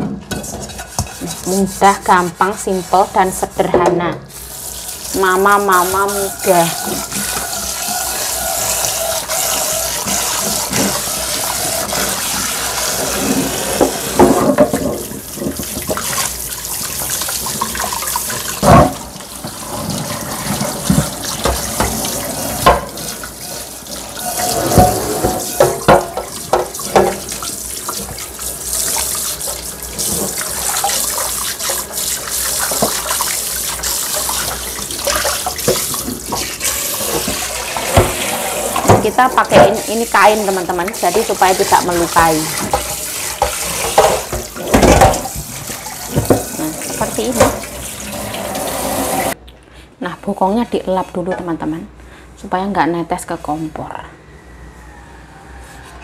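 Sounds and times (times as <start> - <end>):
pan being scrubbed: 0.2 - 49.4
tap water running into sink: 2.9 - 49.4
pan knocking in metal sink: 5.5 - 16.2, 17.8 - 23.3, 24.0 - 28.2, 34.2 - 47.7.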